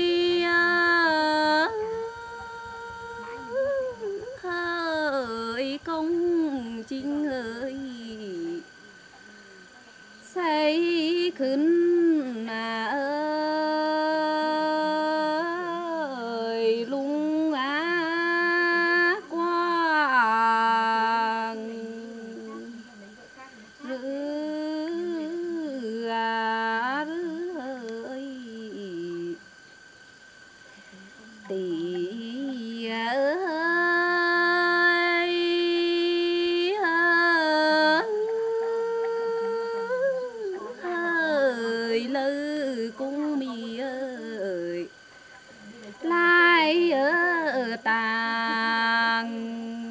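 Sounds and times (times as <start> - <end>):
woman singing unaccompanied: 0.0 - 9.2, 9.9 - 29.9, 30.5 - 49.9
woman singing solo: 31.2 - 45.0.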